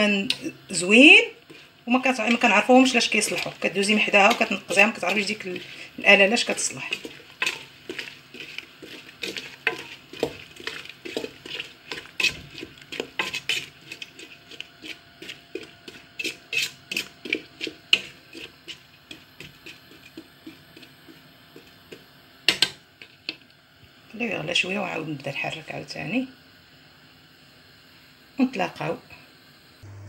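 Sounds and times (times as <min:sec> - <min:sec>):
wooden spoon stirring in steel pot: 0:00.0 - 0:23.5.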